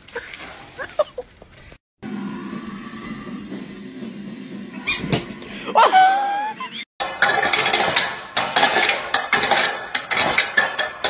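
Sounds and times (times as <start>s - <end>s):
short wavering cry: 5.6s - 6.8s
metal bowl clattering on bricks: 7.0s - 11.0s.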